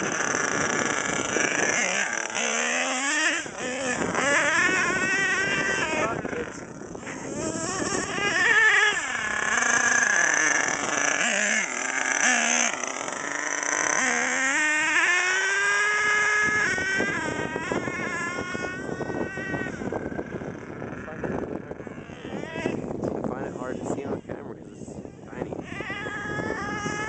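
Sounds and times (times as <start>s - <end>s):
model truck engine whining: 0.0s - 23.2s, 25.2s - 27.0s.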